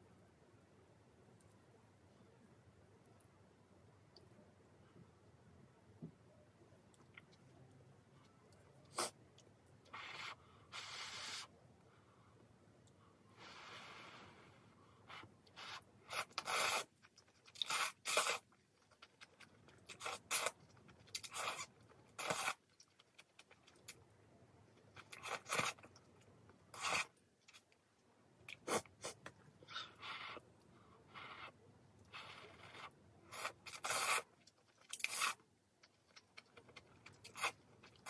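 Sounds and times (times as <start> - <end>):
noodles being slurped: 34.9 - 35.4.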